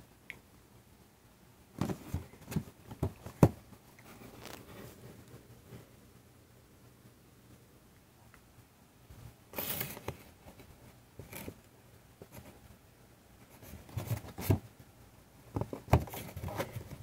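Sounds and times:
hands handling cardboard box: 1.8s - 5.2s, 13.4s - 14.7s, 15.5s - 17.0s.

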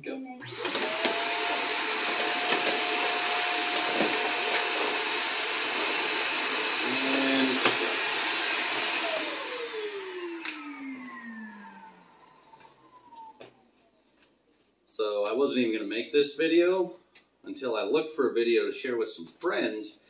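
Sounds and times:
vacuum motor spinning down: 0.4s - 13.7s
vacuum cleaner running: 0.4s - 13.8s.

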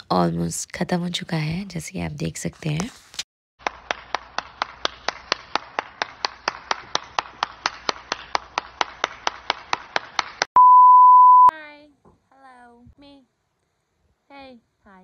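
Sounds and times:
person clapping: 3.6s - 10.5s.

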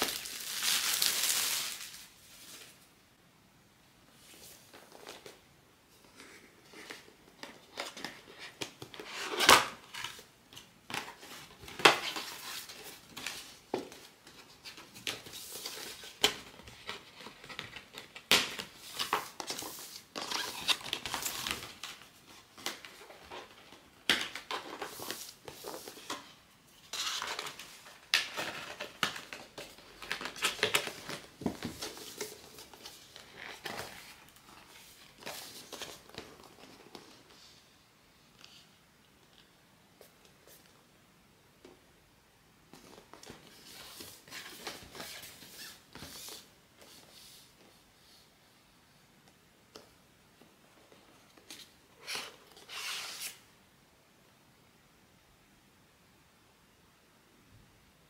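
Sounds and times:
packaging crinkling and tearing: 0.0s - 2.7s.

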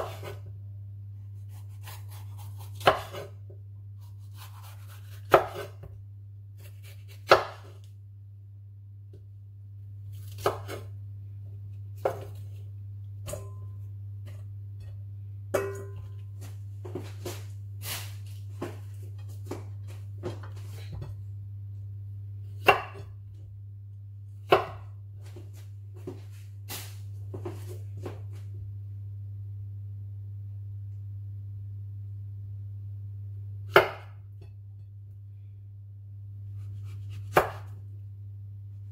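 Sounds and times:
knife chopping on wooden board: 0.0s - 0.4s, 1.8s - 3.4s, 4.2s - 5.9s, 6.6s - 7.8s, 10.2s - 10.9s, 22.6s - 23.1s, 24.5s - 24.9s, 33.7s - 34.2s, 36.6s - 37.8s
steady low hum: 0.0s - 38.9s.

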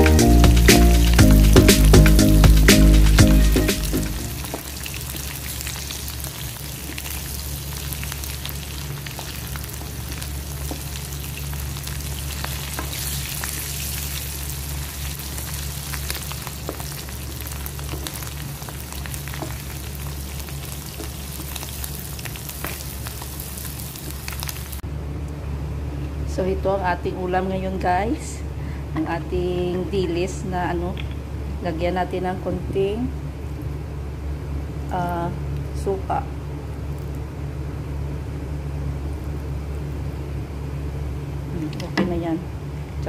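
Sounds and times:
low steady hum: 0.0s - 43.0s
fish frying in hot oil: 0.6s - 24.8s.

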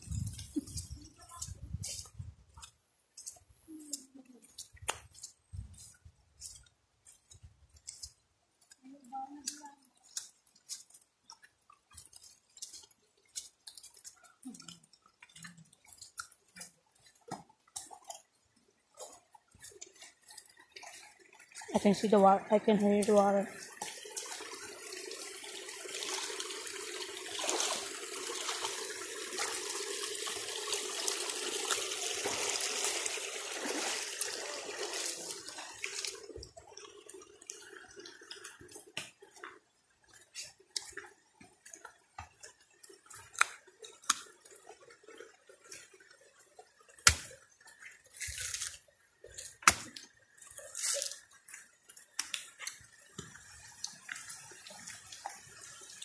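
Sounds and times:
footsteps on a wet path: 0.0s - 8.8s, 9.4s - 18.2s
stream water rushing: 21.7s - 38.6s.

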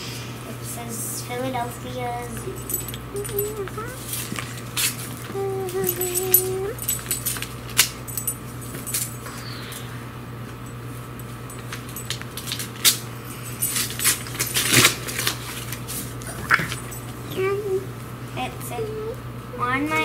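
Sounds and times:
steady low hum: 0.0s - 20.0s
paper rustling while unwrapping: 13.8s - 16.8s.

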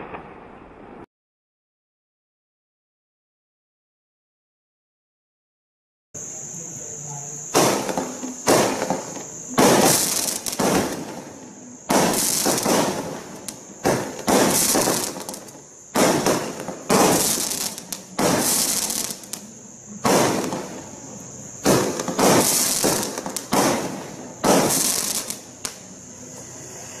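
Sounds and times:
firework shots with crackling tails: 0.0s - 1.1s, 7.4s - 25.9s.

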